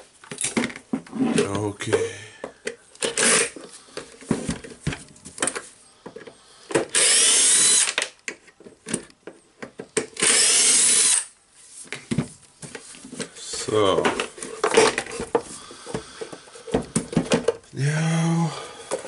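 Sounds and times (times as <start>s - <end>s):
cordless drill whine: 6.9s - 8.0s, 10.2s - 11.3s.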